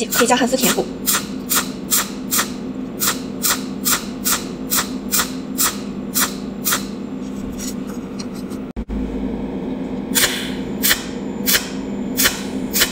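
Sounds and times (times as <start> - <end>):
welding machine snapping: 0.0 - 7.0, 10.2 - 12.9
steady low hum: 0.0 - 12.9.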